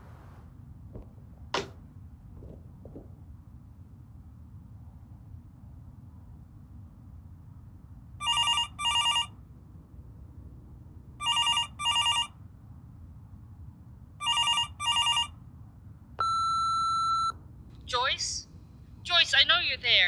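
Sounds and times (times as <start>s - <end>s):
telephone double ring: 11.2s - 12.3s, 14.2s - 15.3s.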